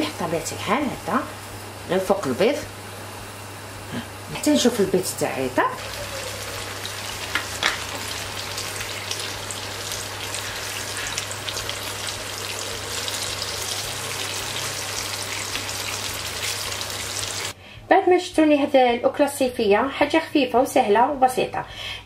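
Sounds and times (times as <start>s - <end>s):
eggs sizzling in a pan: 5.2s - 17.6s.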